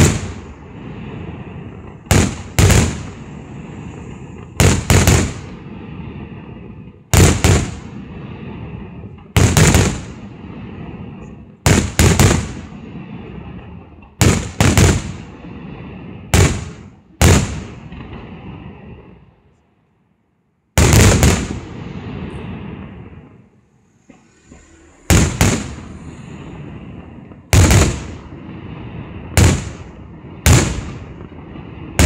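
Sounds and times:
firework shells bursting: 0:00.0 - 0:05.7, 0:07.2 - 0:19.2, 0:20.8 - 0:32.0
low rumble: 0:21.6 - 0:32.0.

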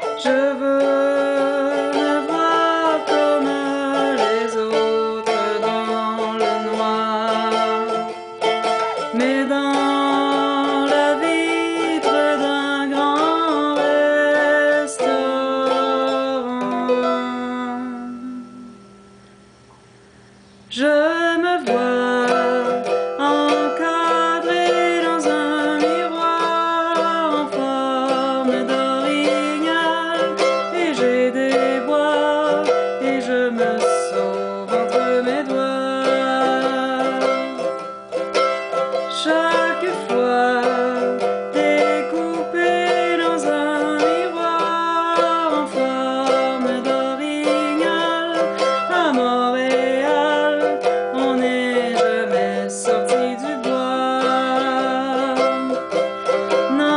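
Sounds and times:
woman singing folk melody: 0:00.0 - 0:19.2, 0:20.4 - 0:56.9
mandolin strumming: 0:00.0 - 0:56.9.

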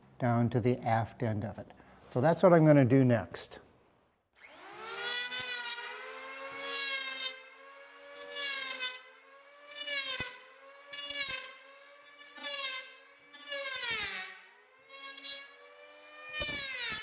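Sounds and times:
electric hand planer whining: 0:04.4 - 0:17.0.

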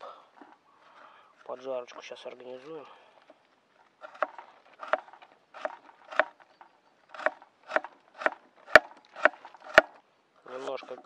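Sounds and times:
knife chopping carrot on wood: 0:04.0 - 0:05.0, 0:05.6 - 0:06.4, 0:07.2 - 0:09.9.

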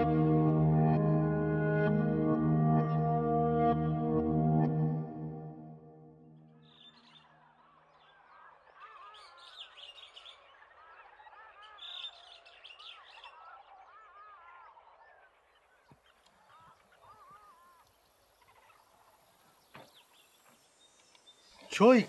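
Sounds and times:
music chord: 0:00.0 - 0:06.6
small birds chirping: 0:06.4 - 0:22.0.

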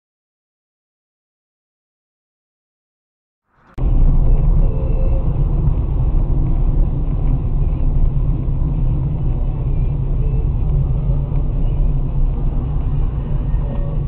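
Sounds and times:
car engine rumble: 0:03.5 - 0:14.0
tyres on wet road: 0:03.5 - 0:14.0.

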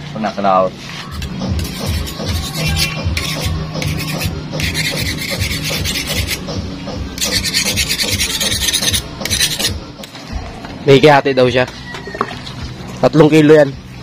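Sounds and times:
knife scraping through eel: 0:07.2 - 0:09.8.

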